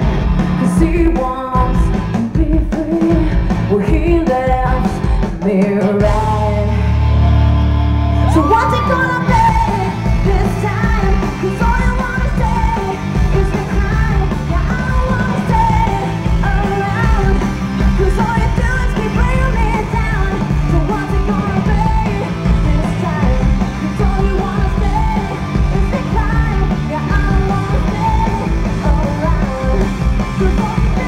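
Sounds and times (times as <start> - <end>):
live rock band playing: 0.0 - 31.0.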